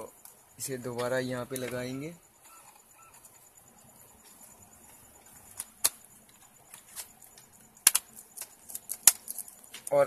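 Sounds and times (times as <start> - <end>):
laptop keyboard clicks: 5.5 - 9.9.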